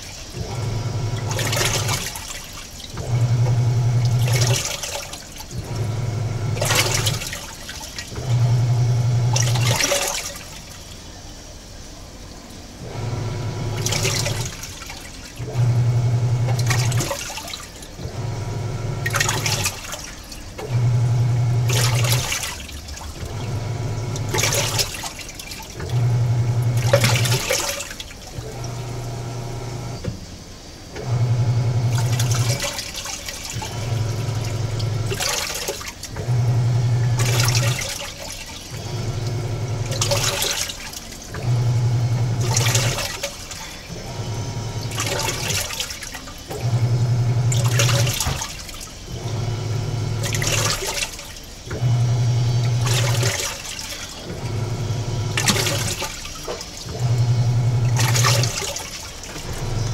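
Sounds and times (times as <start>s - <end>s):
water surging and splashing: 0.0s - 3.2s, 3.8s - 5.9s, 6.6s - 8.4s, 9.4s - 12.8s, 16.5s - 18.2s, 21.6s - 29.0s, 31.9s - 36.4s, 37.1s - 41.6s, 42.2s - 59.9s
washing machine motor hum: 0.0s - 59.9s.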